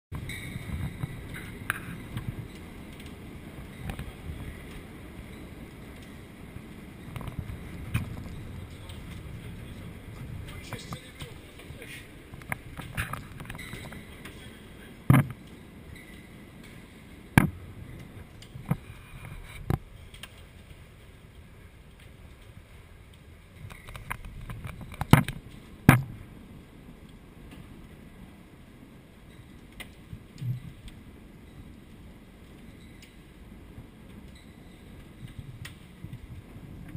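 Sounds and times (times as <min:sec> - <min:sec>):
low storm background noise: 0:00.1 - 0:36.9
hail and rain falling: 0:01.0 - 0:15.9.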